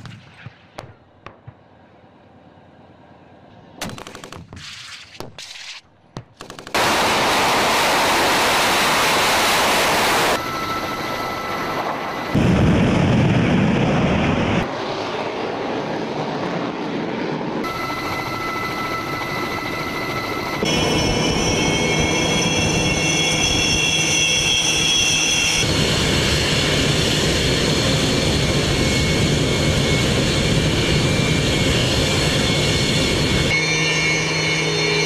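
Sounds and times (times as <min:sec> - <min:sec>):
sharp gunshots: 0:00.0 - 0:01.7, 0:03.8 - 0:08.8
jet engine roar: 0:06.7 - 0:35.0
deep rumble: 0:10.6 - 0:15.1.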